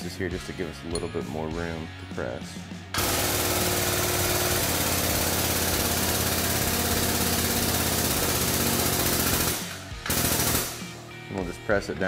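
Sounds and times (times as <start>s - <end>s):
hydraulic press pump running: 3.0s - 10.7s.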